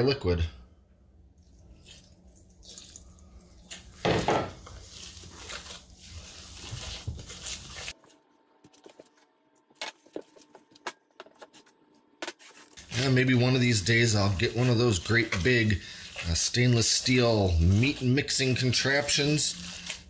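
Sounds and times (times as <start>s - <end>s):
hand squishing wet ground meat: 4.6s - 8.0s, 12.8s - 20.0s.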